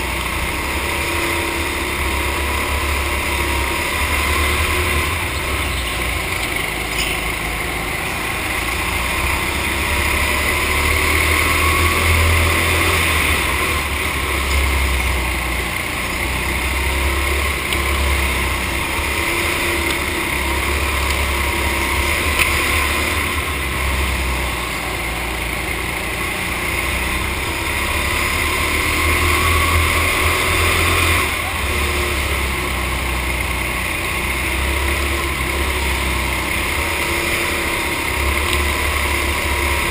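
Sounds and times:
go-kart engine drone: 0.0 - 39.9.

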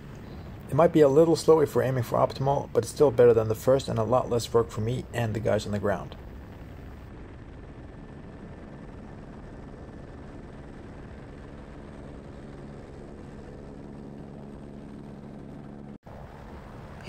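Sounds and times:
helicopter rotor and turbine: 0.0 - 17.0.

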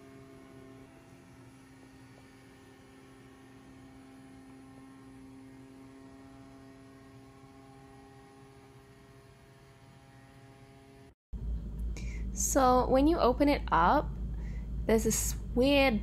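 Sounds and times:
robot vacuum motor hum: 0.0 - 11.2.

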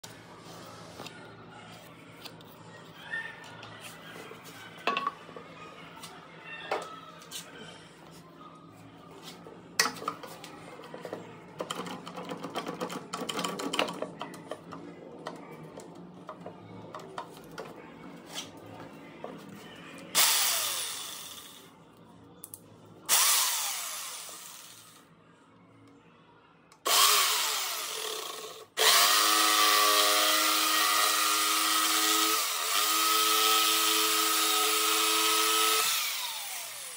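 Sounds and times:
jigsaw cutting wood: 26.9 - 36.9.

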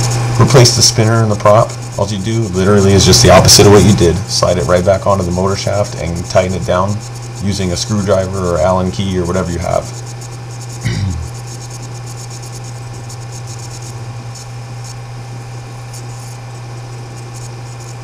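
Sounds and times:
even hiss: 0.0 - 12.6
low electrical hum: 0.0 - 18.0
short voiced sound: 10.9 - 11.3.

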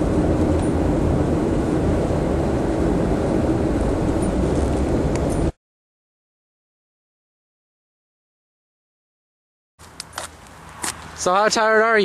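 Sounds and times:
car road and engine noise: 0.0 - 5.6, 9.8 - 12.0.

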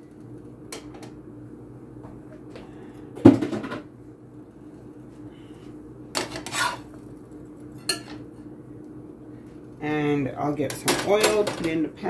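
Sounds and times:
metal spatula scraping frying pan: 6.2 - 7.0.

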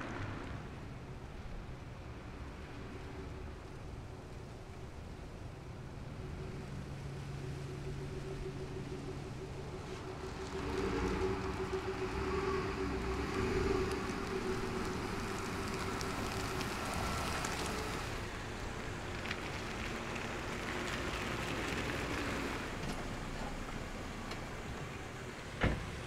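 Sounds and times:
car engine hum: 0.0 - 26.0.

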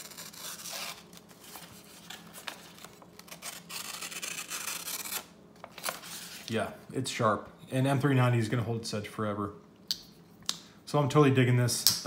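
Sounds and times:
paper rustling: 0.0 - 4.0, 4.9 - 6.6
knife slicing paper: 0.0 - 6.4.

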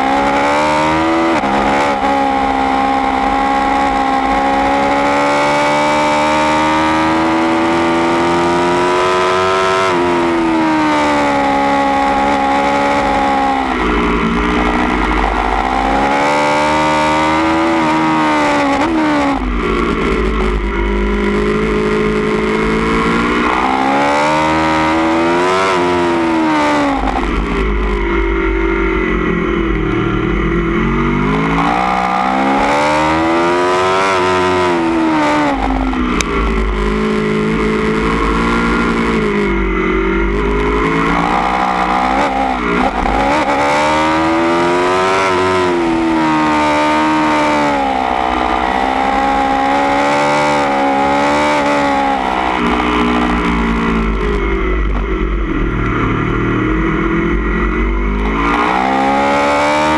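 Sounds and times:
motorcycle engine accelerating: 0.0 - 59.9
low rumble off throttle: 26.9 - 31.6, 52.6 - 58.4.

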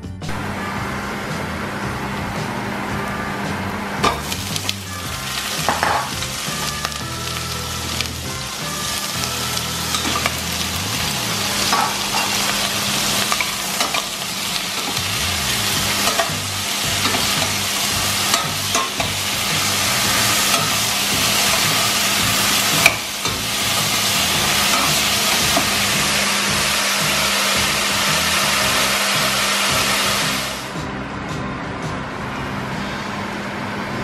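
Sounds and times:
vegetables sizzling in oil: 3.6 - 30.7.

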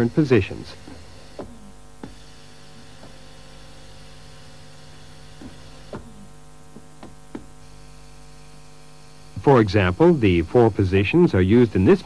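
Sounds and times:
electrical hum: 0.0 - 12.0
pneumatic cylinder knocks: 0.8 - 3.3, 5.2 - 7.6.

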